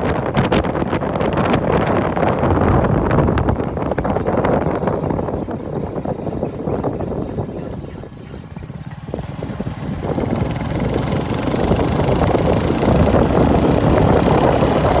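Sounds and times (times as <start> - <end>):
wind rushing over microphone: 0.0 - 15.0
motorcycle engine running: 7.9 - 15.0.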